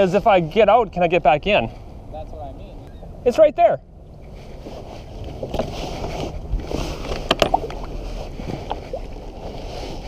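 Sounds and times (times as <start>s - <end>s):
water lapping against kayak hull: 4.1s - 10.0s.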